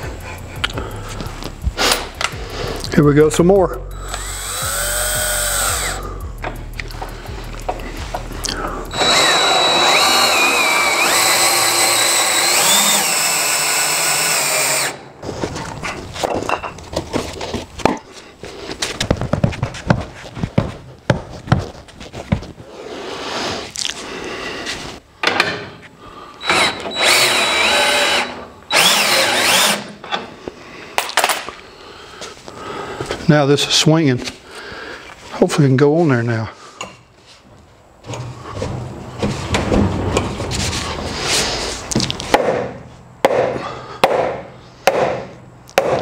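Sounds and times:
power drill motor whining: 4.0s - 6.1s, 8.9s - 15.0s, 26.4s - 29.9s.

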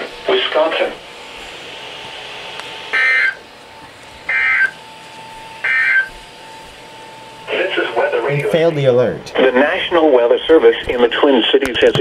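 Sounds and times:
broadcast hiss: 0.0s - 12.0s
steady low hum: 0.0s - 12.0s
screechy digital data bursts: 2.9s - 3.4s, 4.3s - 4.8s, 5.6s - 6.2s.

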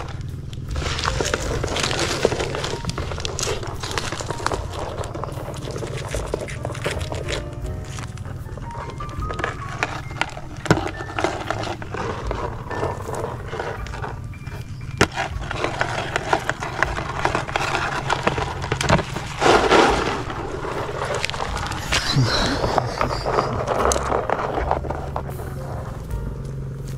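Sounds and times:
steady low rumble: 0.0s - 26.9s
metal tongs rustling dry leaves: 0.2s - 25.6s.

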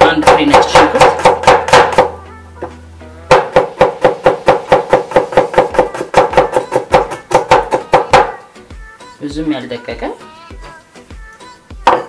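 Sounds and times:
knife chopping on wooden board: 0.0s - 8.4s
background music: 0.0s - 12.0s.

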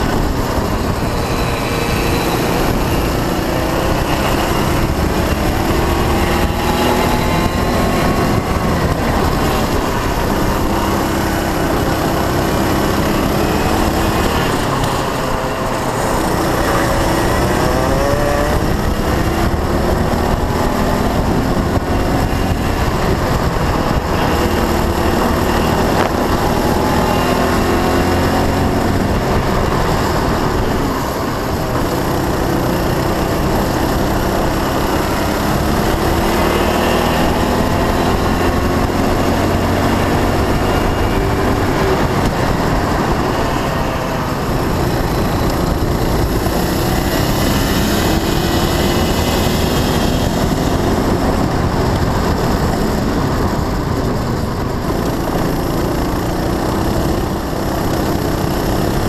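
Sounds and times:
kart engine revving: 0.0s - 59.0s
rush of noise: 0.0s - 59.0s.

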